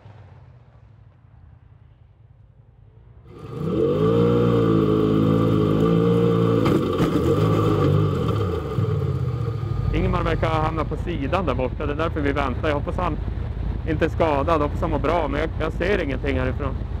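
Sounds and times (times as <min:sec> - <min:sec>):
race car engine at high revs: 0:03.3 - 0:14.0.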